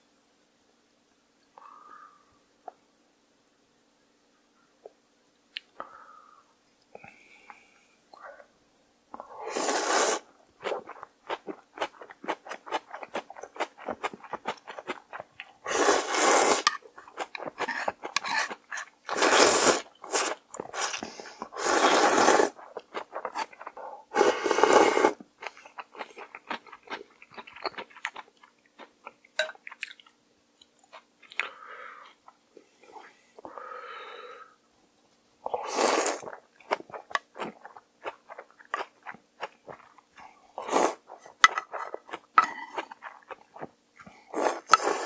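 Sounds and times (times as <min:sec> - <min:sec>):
slurping noodles: 0:09.4 - 0:25.2, 0:35.5 - 0:37.6, 0:39.7 - 0:43.4, 0:44.2 - 0:45.0
moist chewing: 0:36.3 - 0:40.4.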